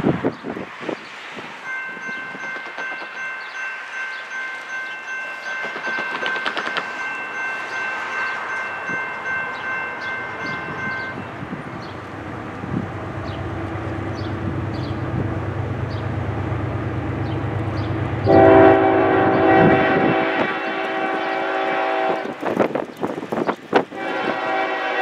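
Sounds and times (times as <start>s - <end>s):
locomotive air horn chord: 18.2s - 22.4s, 23.9s - 25.0s.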